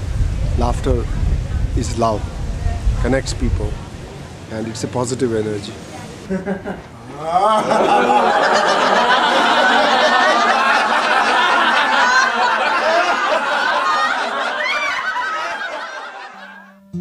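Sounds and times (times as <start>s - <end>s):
group of people laughing: 6.3s - 16.8s.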